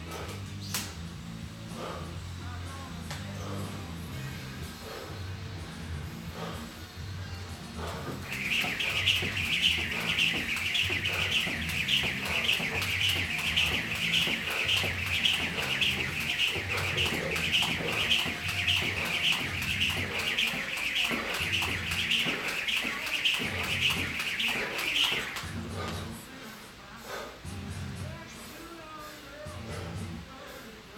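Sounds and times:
jump rope whirring: 7.7s - 26.2s.

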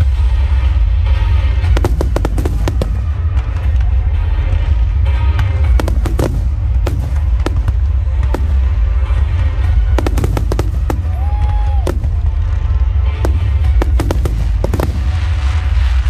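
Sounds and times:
fireworks banging and crackling: 0.0s - 16.0s
music playing: 0.0s - 16.0s.

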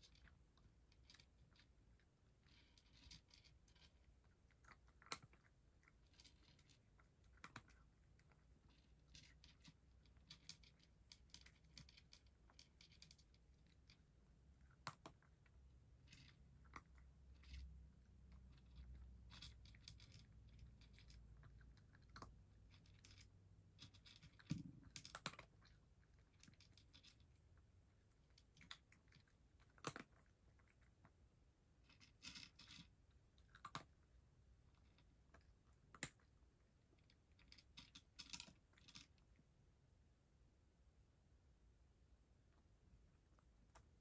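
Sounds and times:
cat eating from a dish: 0.0s - 39.8s, 42.4s - 44.0s.

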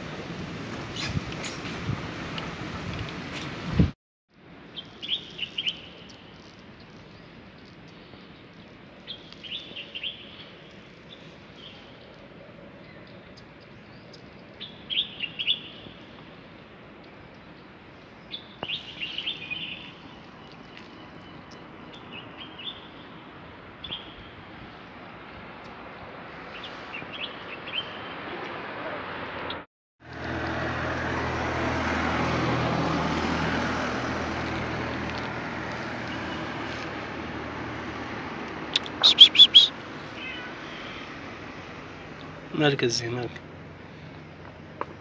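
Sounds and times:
outdoor background noise: 0.0s - 45.0s
small birds chirping: 4.7s - 25.8s, 26.4s - 28.5s, 38.7s - 41.0s.

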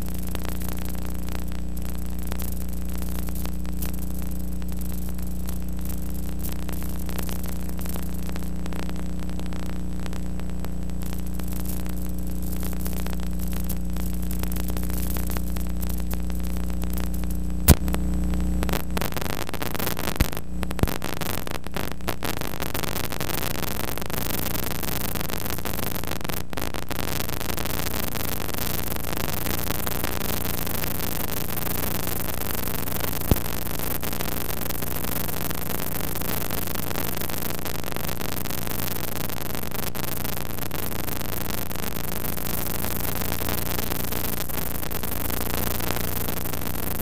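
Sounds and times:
electrical mains hum: 0.0s - 22.6s
small pops: 10.9s - 18.0s, 18.6s - 47.0s.

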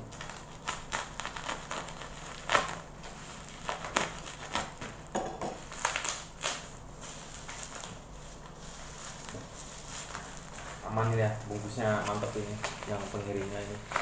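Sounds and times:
tape and bubble wrap crinkling: 0.0s - 14.0s
sharp tearing rips: 0.1s - 4.8s, 5.6s - 6.8s.

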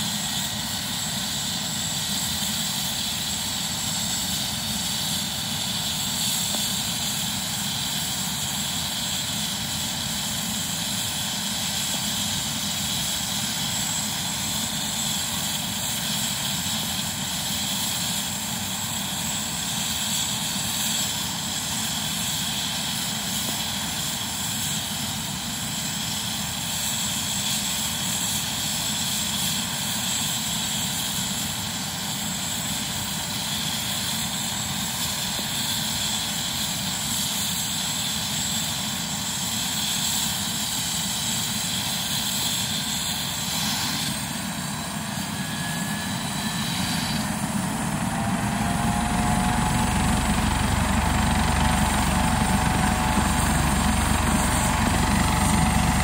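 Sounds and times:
helicopter rotor rushing: 0.0s - 56.0s
helicopter turbine whine: 0.0s - 56.0s.

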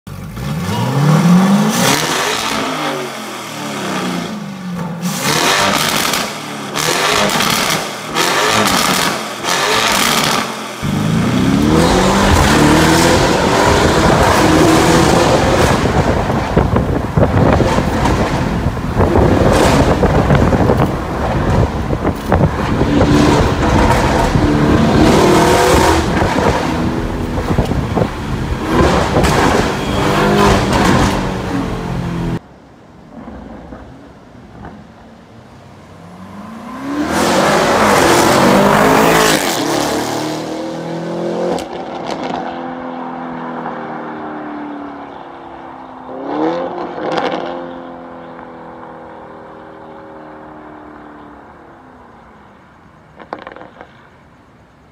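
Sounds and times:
car engine accelerating: 0.1s - 32.4s, 36.1s - 44.3s.

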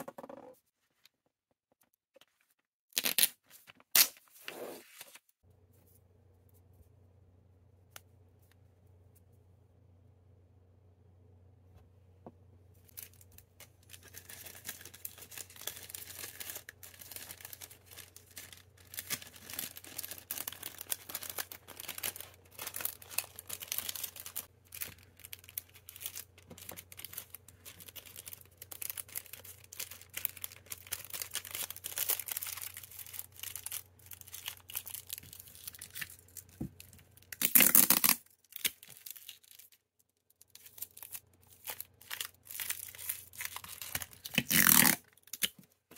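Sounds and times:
faint low hum: 5.5s - 31.9s
plastic packaging crinkling: 12.9s - 39.8s, 40.4s - 45.7s
brief ripping sound: 37.4s - 38.2s, 44.3s - 45.0s.

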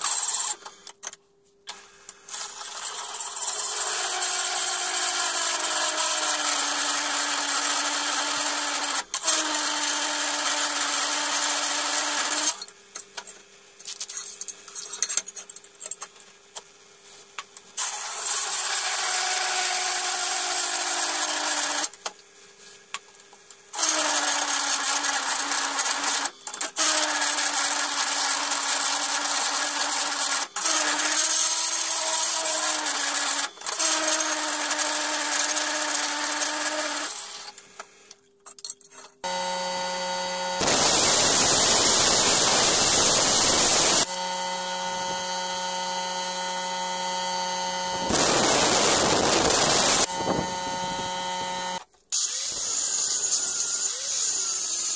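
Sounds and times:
drill press cutting steel plate: 39.3s - 54.6s.

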